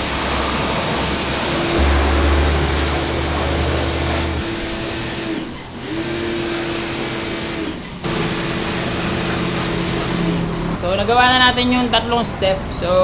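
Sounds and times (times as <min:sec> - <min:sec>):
water jet hissing: 0:00.0 - 0:10.8
pressure washer hum: 0:00.0 - 0:11.1.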